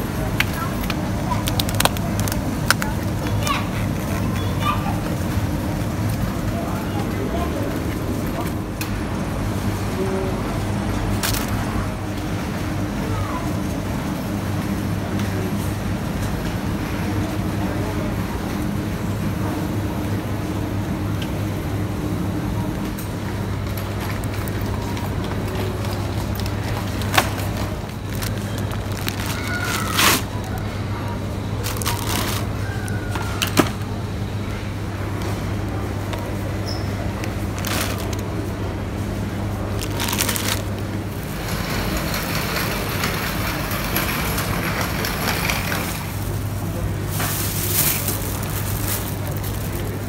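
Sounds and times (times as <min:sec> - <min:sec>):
shopping trolley rolling on tiles: 0:00.0 - 0:19.0, 0:22.8 - 0:34.0, 0:34.9 - 0:50.0
plastic packaging rustling: 0:01.2 - 0:03.3, 0:11.2 - 0:11.6, 0:26.4 - 0:30.7, 0:31.6 - 0:33.0, 0:37.2 - 0:38.3, 0:39.7 - 0:41.4, 0:45.6 - 0:50.0
trolley clatter: 0:39.7 - 0:50.0.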